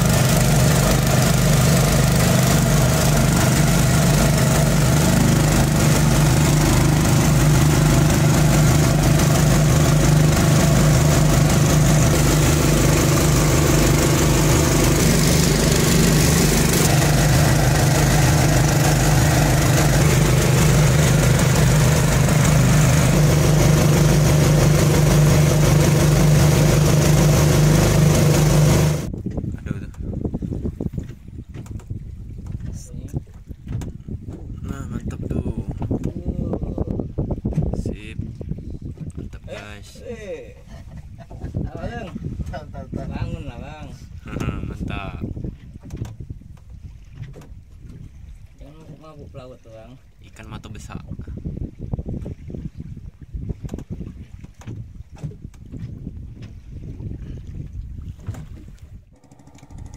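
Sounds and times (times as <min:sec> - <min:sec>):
boat engine chugging: 0:00.0 - 0:29.1, 0:59.0 - 0:59.9.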